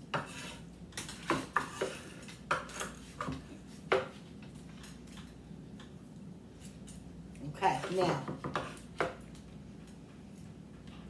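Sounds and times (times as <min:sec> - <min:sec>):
knife chopping on wooden board: 0:07.8 - 0:09.2.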